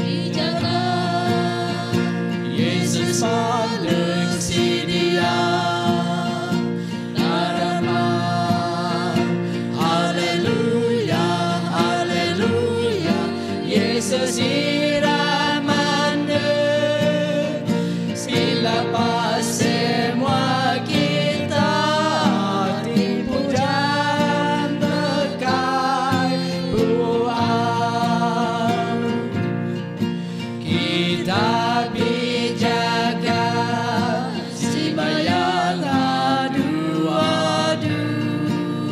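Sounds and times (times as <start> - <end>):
acoustic guitar: 0.0 - 38.9
men and women singing: 0.0 - 38.9.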